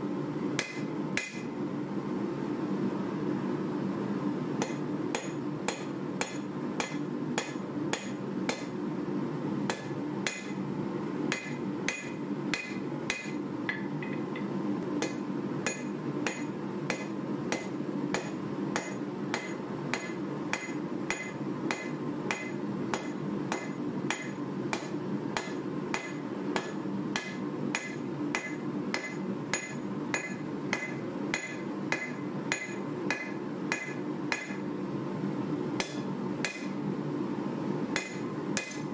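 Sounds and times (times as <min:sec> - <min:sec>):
steady low hum: 0:00.0 - 0:38.9
hammer striking steel on anvil: 0:00.6 - 0:01.5, 0:04.6 - 0:08.8, 0:09.7 - 0:10.6, 0:11.3 - 0:34.7, 0:35.8 - 0:36.8, 0:38.0 - 0:38.9.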